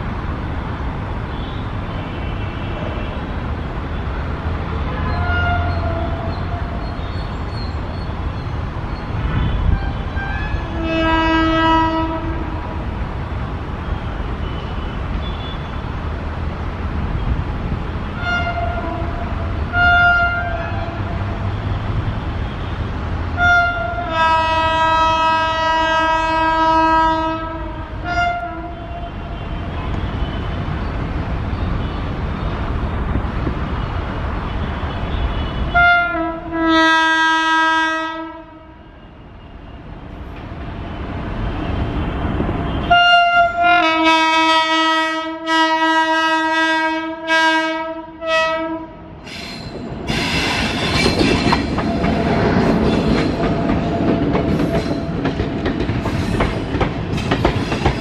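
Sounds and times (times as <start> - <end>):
train rumble: 0.0 - 58.0
locomotive air horn: 4.8 - 6.9, 9.3 - 12.6, 18.2 - 21.8, 23.4 - 30.6, 34.8 - 39.5, 42.7 - 49.0
train wheels clicking: 49.2 - 58.0.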